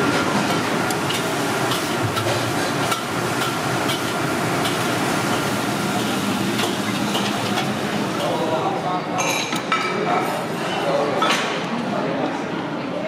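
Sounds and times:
utensils and cookware clinking: 0.0s - 11.6s.

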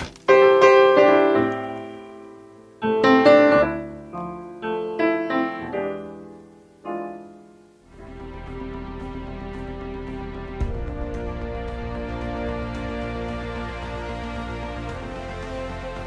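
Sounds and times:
piano chords and notes: 0.0s - 16.0s.

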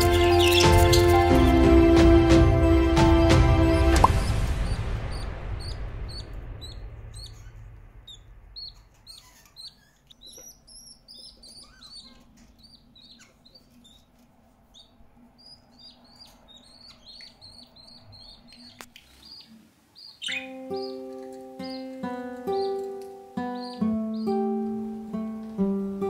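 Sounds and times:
chicks peeping: 0.0s - 1.7s, 3.5s - 25.8s
background music: 0.0s - 8.8s, 20.3s - 26.0s.

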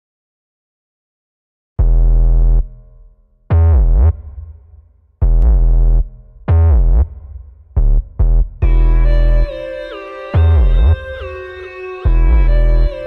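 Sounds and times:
heavy synth bass notes: 1.8s - 13.0s.

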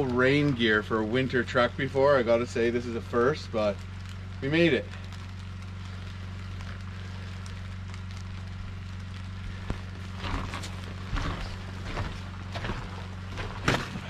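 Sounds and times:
freezing rain falling: 0.0s - 14.0s
low hum: 0.0s - 14.0s
footsteps on icy snow: 5.1s - 14.0s.

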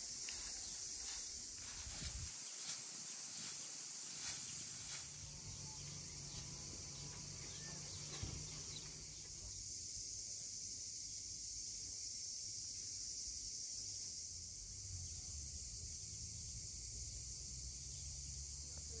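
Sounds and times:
broom sweeping stone path: 0.0s - 9.6s
insects chorus: 0.0s - 19.0s.

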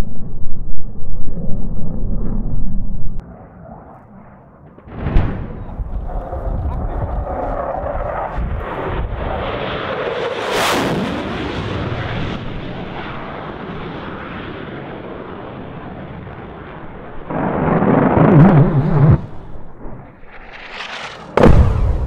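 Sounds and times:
jet aircraft passing: 1.5s - 22.0s
aircraft cannon fire: 3.3s - 22.0s.

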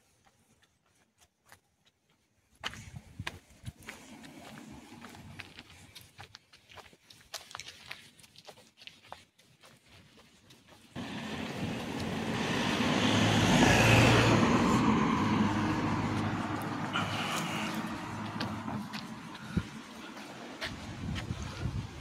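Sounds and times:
car driving past: 11.0s - 20.6s.

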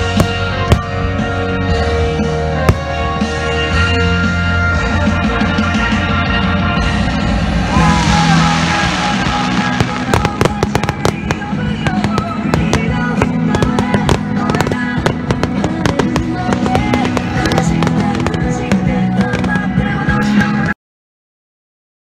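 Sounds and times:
music playing: 0.0s - 20.8s
fireworks crackling: 7.6s - 20.7s.

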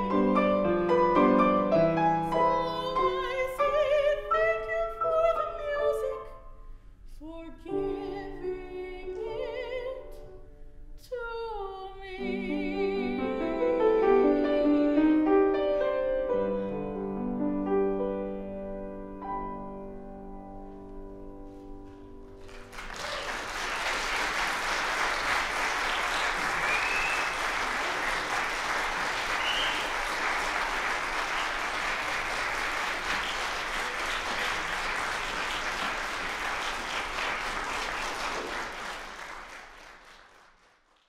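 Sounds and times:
audience applauding: 22.3s - 41.0s.

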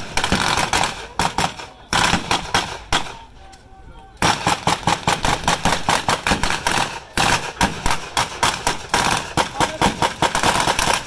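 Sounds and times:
rapid blank gunfire: 0.0s - 3.2s, 4.2s - 11.0s.

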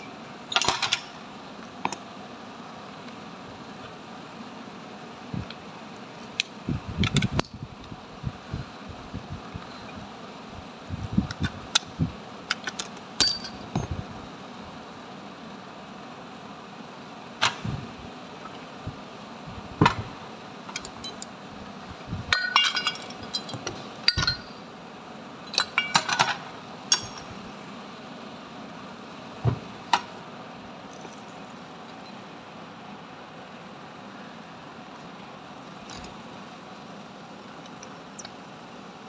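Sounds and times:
steady background hum: 0.0s - 39.0s
metal parts knocking and clinking: 0.5s - 1.2s, 12.5s - 14.0s, 20.7s - 21.4s, 22.3s - 24.6s, 25.5s - 27.3s.

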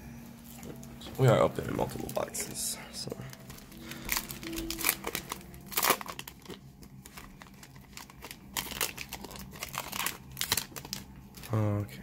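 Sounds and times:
foil wrapper crinkling and tearing: 3.3s - 11.8s.

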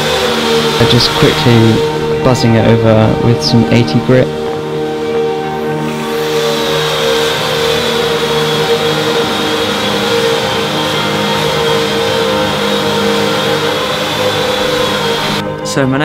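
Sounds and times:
sanding belt rasping on wood: 0.0s - 1.9s, 6.0s - 15.4s
belt sander motor whine: 0.0s - 15.5s.

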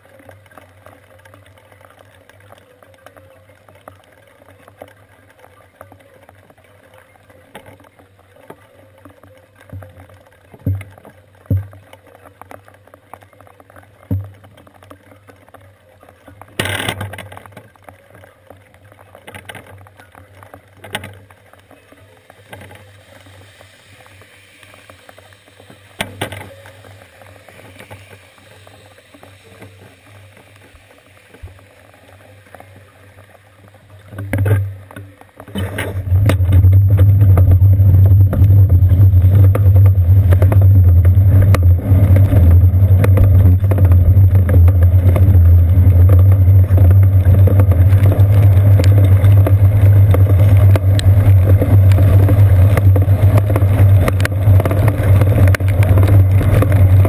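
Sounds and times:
wind and road vibration rumble: 33.6s - 57.0s.

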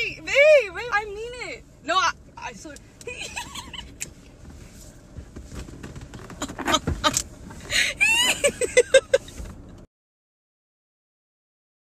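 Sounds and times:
woman laughing: 3.1s - 4.0s, 6.4s - 9.4s
knocks and rustling in car seat: 3.3s - 9.8s.

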